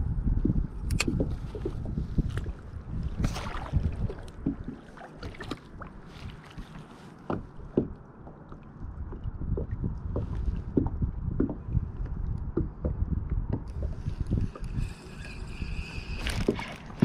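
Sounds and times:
low water rumble: 0.0s - 17.0s.

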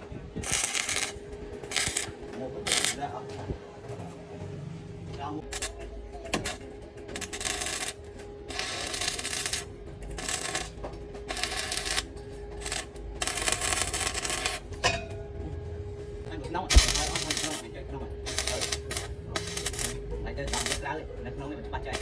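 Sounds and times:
welding arc crackling: 0.0s - 3.2s, 5.4s - 14.7s, 16.7s - 21.0s.

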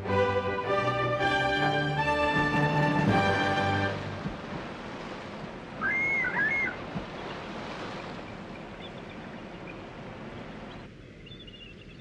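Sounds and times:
water rushing: 0.0s - 11.0s
eagle calling: 5.8s - 6.8s.

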